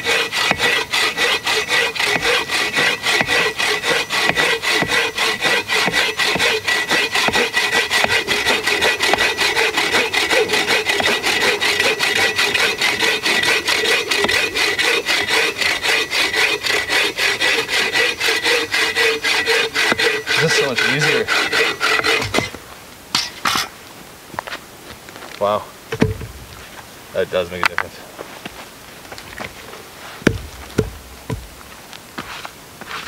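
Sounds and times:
bow saw cutting log: 0.0 - 22.6, 30.2 - 31.6
wood knocking: 25.9 - 26.6, 30.2 - 31.7.

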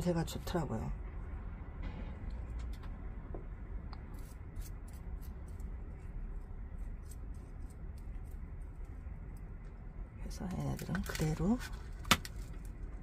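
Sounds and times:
tweezers scratching: 4.1 - 6.1.

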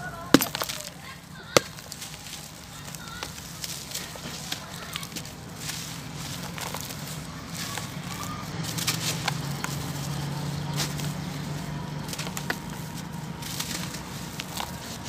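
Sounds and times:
dry cement chunks crunching: 0.0 - 15.0.

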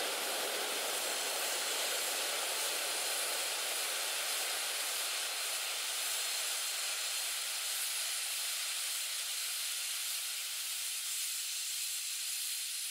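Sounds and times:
quadcopter propeller hiss: 0.0 - 6.8.

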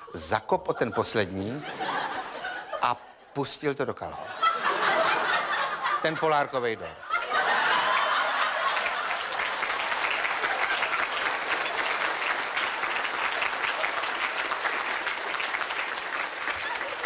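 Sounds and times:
audience laughing: 0.5 - 3.3, 4.0 - 17.0
audience clapping: 7.2 - 17.0.

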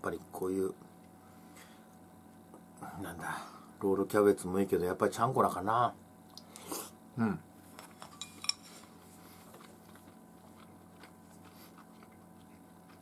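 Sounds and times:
faint steady hum: 0.0 - 13.0
person chewing food: 8.3 - 13.0.

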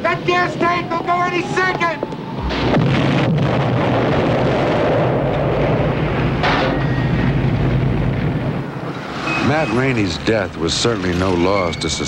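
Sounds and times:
fire rushing: 0.0 - 11.5
car explosion blast: 2.4 - 8.6.

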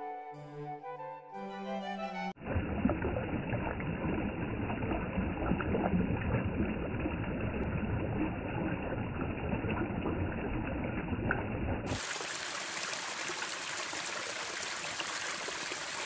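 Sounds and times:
water splashes: 2.4 - 16.0
stream water rushing: 11.9 - 16.0.

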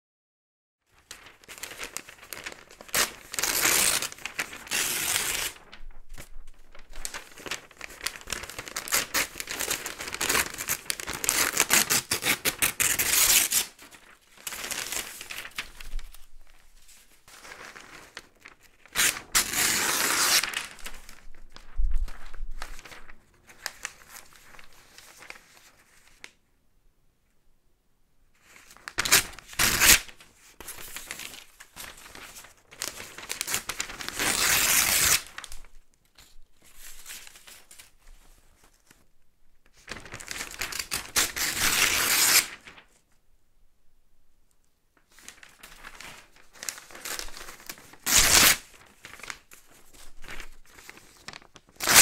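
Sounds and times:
paper tearing: 1.1 - 5.7, 6.7 - 15.6, 17.6 - 20.9, 28.9 - 30.2, 30.8 - 35.5, 39.9 - 42.8, 45.3 - 49.4, 50.3 - 52.0.

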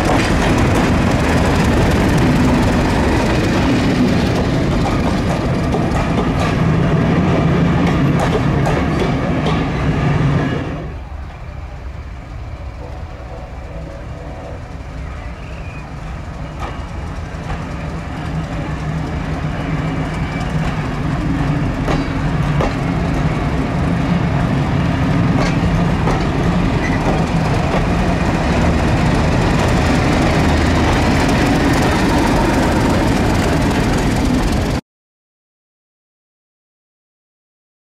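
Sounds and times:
train wheels clicking over rail joints: 0.0 - 9.8, 15.4 - 23.5, 25.0 - 34.8
diesel locomotive engine droning: 0.0 - 34.8.

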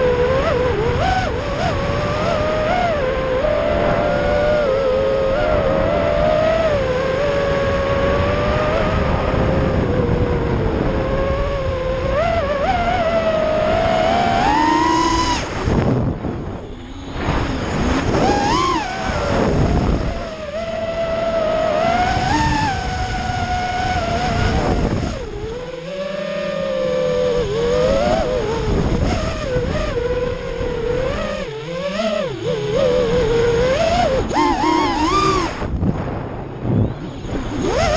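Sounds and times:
quadcopter motors whining: 0.0 - 37.9
wind rushing: 13.6 - 21.2, 32.3 - 37.9.

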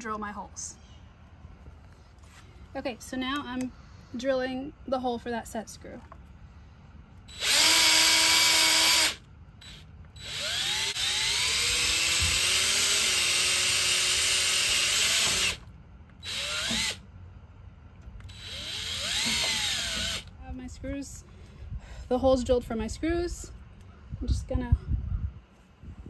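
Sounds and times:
cordless drill boring a hole: 7.3 - 15.6, 16.2 - 17.0, 18.3 - 20.3.

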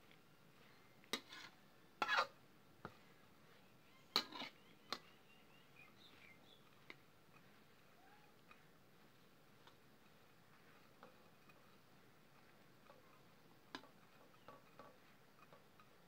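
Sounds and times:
metal spatula scraping a pan: 0.6 - 3.1, 4.0 - 5.2, 5.9 - 16.0.

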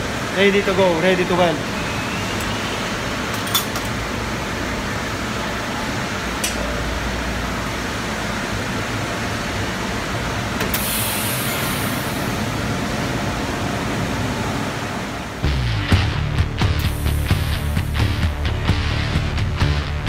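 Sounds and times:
factory machinery rushing noise: 0.0 - 18.9
brief hiss: 10.7 - 12.3.

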